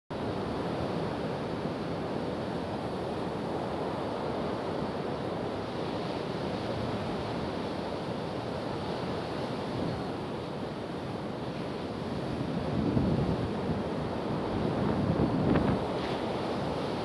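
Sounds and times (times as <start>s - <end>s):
surf breaking on beach: 11.6s - 17.0s
wind on microphone: 12.0s - 17.0s.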